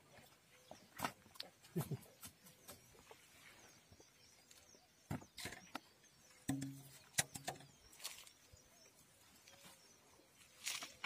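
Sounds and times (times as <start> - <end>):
rustling dry grass: 7.8 - 8.6, 9.4 - 11.0.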